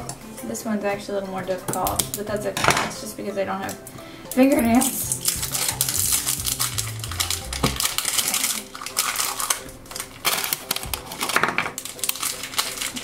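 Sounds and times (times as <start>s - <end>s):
plastic wrapper crinkling: 4.5s - 13.0s.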